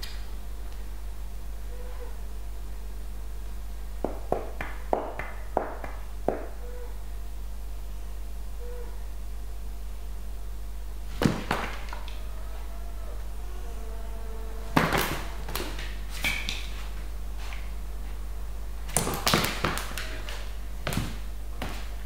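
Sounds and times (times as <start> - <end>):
steady low hum: 0.0 - 22.0
cats play-fighting on tile floor: 11.0 - 22.0.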